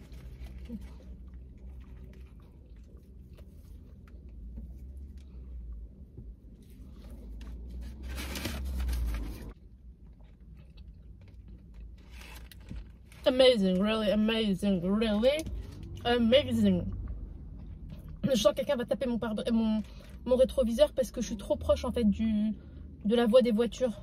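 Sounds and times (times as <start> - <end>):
person chewing a hamburger: 0.0 - 7.7, 9.5 - 13.0.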